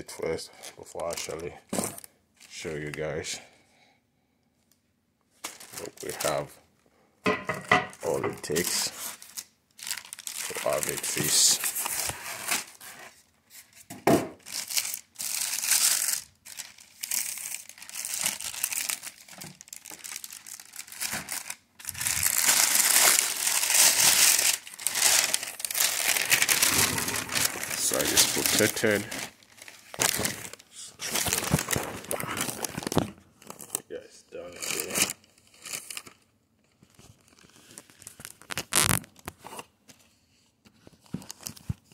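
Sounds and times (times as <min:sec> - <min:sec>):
plastic bag crinkling: 0:05.4 - 0:06.5, 0:08.0 - 0:13.1, 0:14.4 - 0:33.8, 0:34.5 - 0:36.2, 0:37.1 - 0:39.3.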